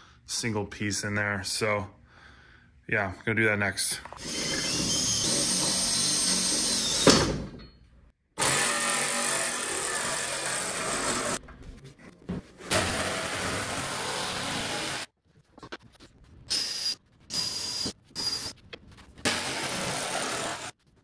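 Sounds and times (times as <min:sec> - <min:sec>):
cordless drill running: 0:04.2 - 0:07.1
jigsaw cutting wood: 0:08.4 - 0:11.4, 0:12.7 - 0:15.1, 0:19.3 - 0:20.8.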